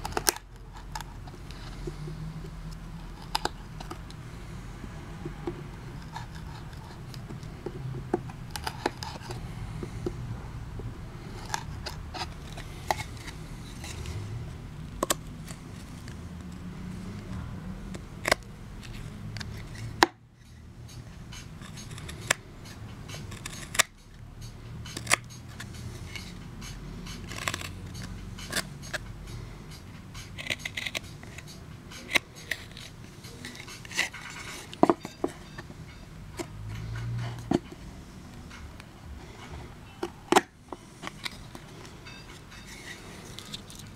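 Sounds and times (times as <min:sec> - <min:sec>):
knife whittling wood: 0:21.4 - 0:29.0.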